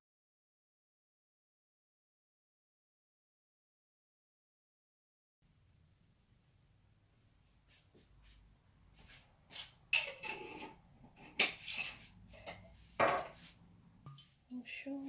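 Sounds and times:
kitchen items clattering: 0:09.9 - 0:13.5.

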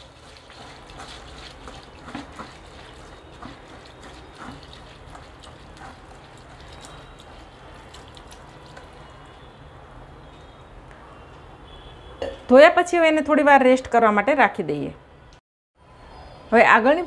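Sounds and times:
small water splashes: 0:00.0 - 0:09.5
water trickling through strainer: 0:00.0 - 0:09.5.

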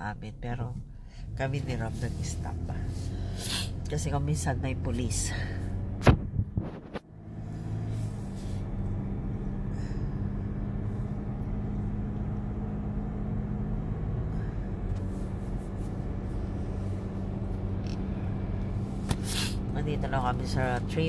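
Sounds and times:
car engine and road drone: 0:00.0 - 0:21.0
sharp knock: 0:06.0 - 0:06.8.

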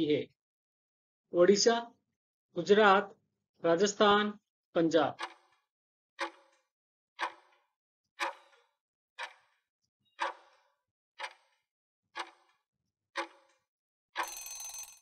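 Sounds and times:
clock ticking: 0:04.8 - 0:09.6, 0:10.2 - 0:10.6, 0:11.2 - 0:12.6, 0:13.2 - 0:13.6, 0:14.2 - 0:15.0.

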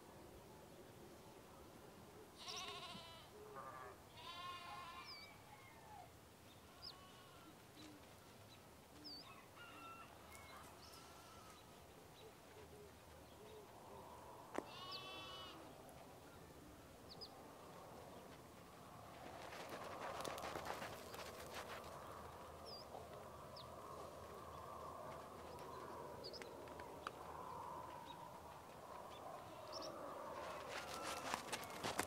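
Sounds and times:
animal bleating: 0:02.4 - 0:05.3, 0:06.6 - 0:07.5, 0:10.8 - 0:11.6, 0:14.6 - 0:15.7, 0:29.4 - 0:29.8, 0:30.6 - 0:32.0.

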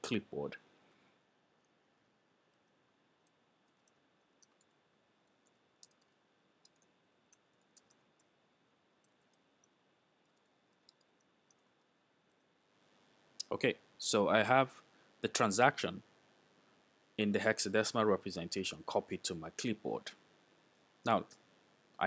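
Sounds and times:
computer keyboard typing: 0:03.2 - 0:08.3.

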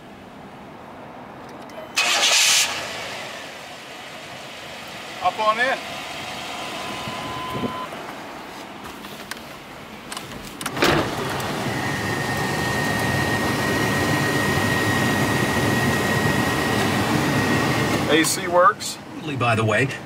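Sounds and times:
air conditioning blower: 0:02.0 - 0:08.5, 0:10.7 - 0:18.5.

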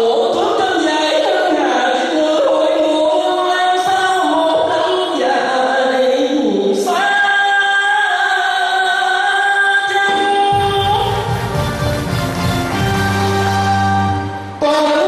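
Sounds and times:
man singing into a microphone: 0:00.0 - 0:11.4
low instrumental accompaniment: 0:10.6 - 0:15.0.

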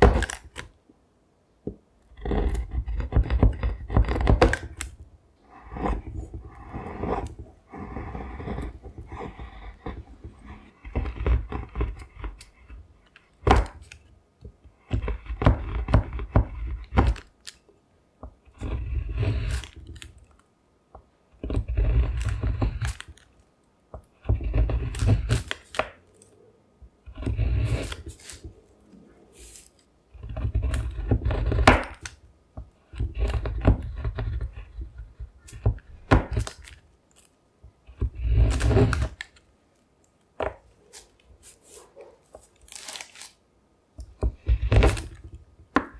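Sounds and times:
knife chopping chocolate on a board: 0:00.0 - 0:00.7, 0:01.7 - 0:05.0, 0:05.8 - 0:12.8, 0:13.4 - 0:13.9, 0:14.7 - 0:17.3, 0:23.9 - 0:26.0, 0:30.2 - 0:36.6, 0:44.1 - 0:45.9.

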